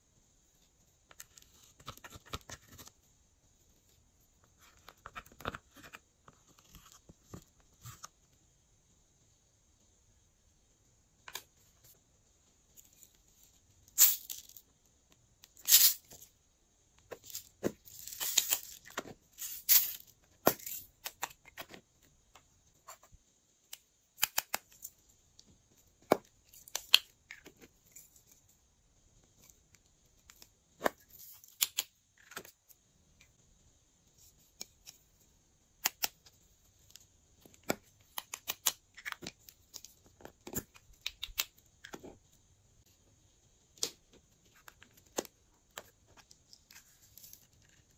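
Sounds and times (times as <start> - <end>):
faint steady hiss: 0.0 - 47.9.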